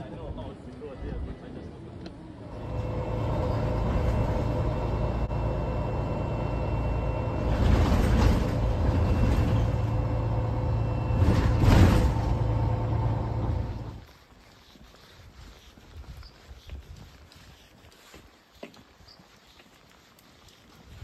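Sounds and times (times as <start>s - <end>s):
bus engine and road noise: 0.0s - 14.0s.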